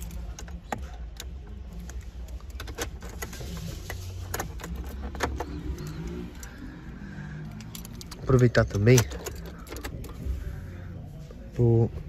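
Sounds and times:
clicks and rattles on dashboard: 0.0s - 6.6s, 7.5s - 10.4s
keys jangling: 7.5s - 10.2s.

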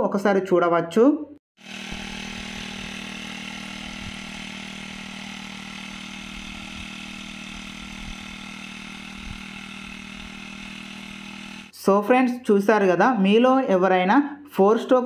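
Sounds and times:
sprayer petrol engine running: 1.6s - 11.8s.

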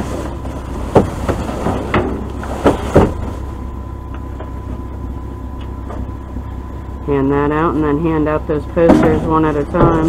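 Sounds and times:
steady low rumble: 0.0s - 10.0s.

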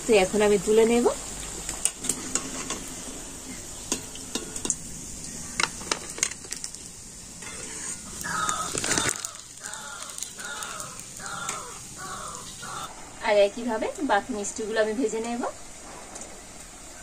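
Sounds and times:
oil sizzling: 0.0s - 17.0s
metal spatula scraping wok: 7.4s - 9.2s
crows cawing: 8.2s - 12.9s.

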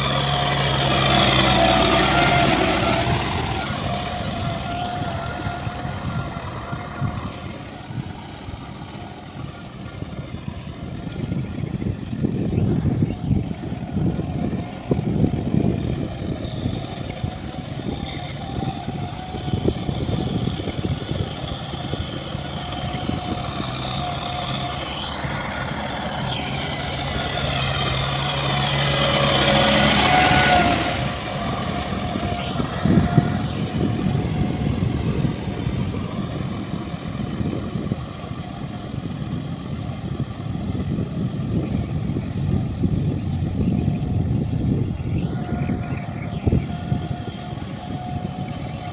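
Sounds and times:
tractor diesel engine working: 0.0s - 48.9s.

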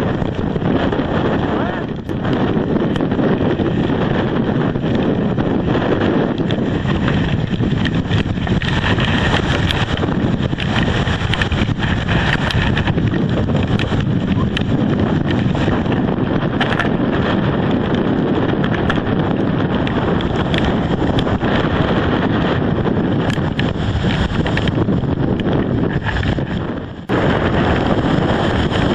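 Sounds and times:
storm wind buffeting microphone: 0.0s - 28.9s
small clicks: 6.3s - 17.0s, 18.6s - 21.4s.

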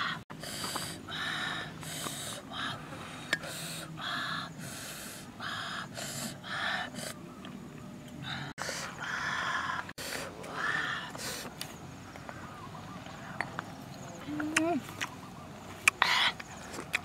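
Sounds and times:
woman breathing rapidly while eating: 0.3s - 7.2s.

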